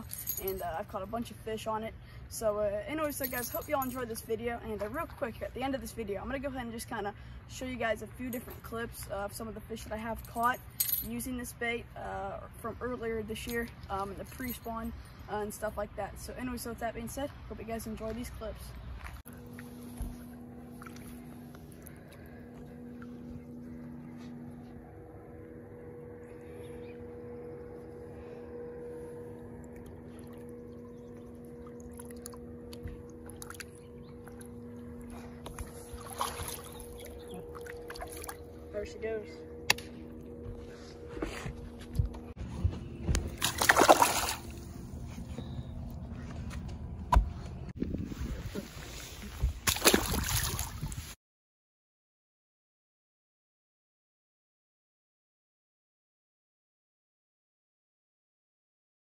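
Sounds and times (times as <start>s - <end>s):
faint water sounds: 0.0s - 42.3s
low hum of constant tones: 0.0s - 51.1s
fish splashing in water: 35.6s - 38.4s, 43.3s - 44.6s, 49.6s - 50.9s.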